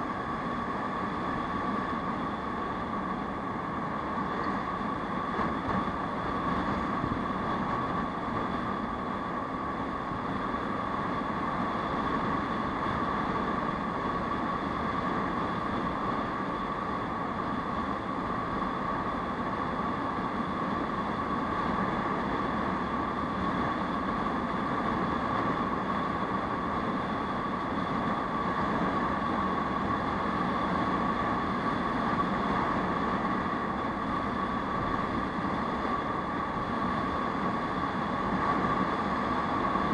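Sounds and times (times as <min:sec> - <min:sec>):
steady high hum: 0:00.0 - 0:39.9
wind and road noise: 0:00.0 - 0:39.9.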